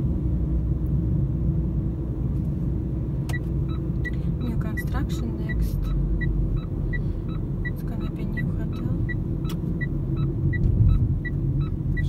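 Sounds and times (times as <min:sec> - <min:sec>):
car road rumble: 0:00.0 - 0:12.0
turn signal ticking: 0:03.1 - 0:12.0.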